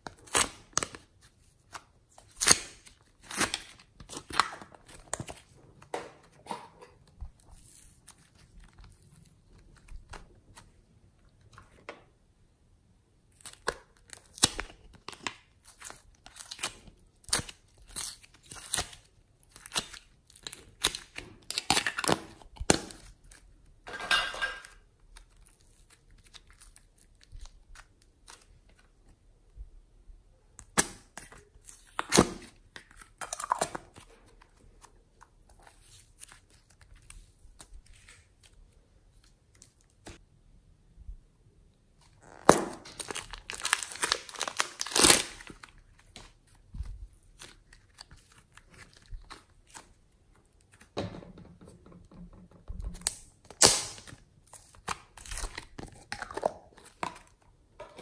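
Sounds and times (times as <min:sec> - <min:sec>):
clay crackling and tearing: 0:13.3 - 0:23.5, 0:42.0 - 0:51.0, 0:52.8 - 0:57.4.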